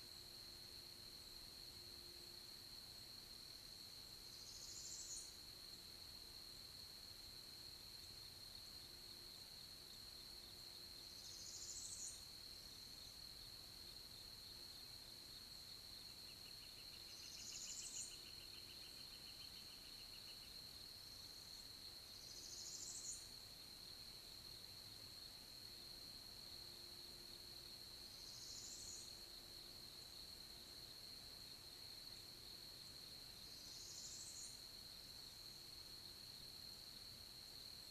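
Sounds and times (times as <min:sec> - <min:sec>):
songbird buzzy song: 0:00.0 - 0:37.9.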